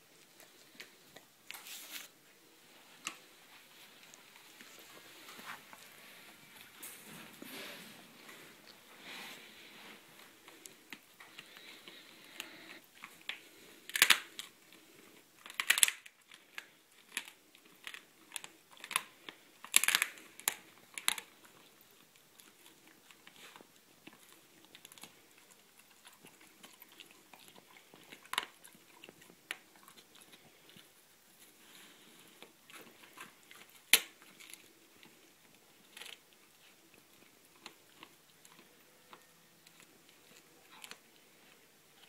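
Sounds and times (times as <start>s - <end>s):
dog cracking bones: 10.4s - 14.8s, 15.4s - 30.9s, 32.4s - 41.6s.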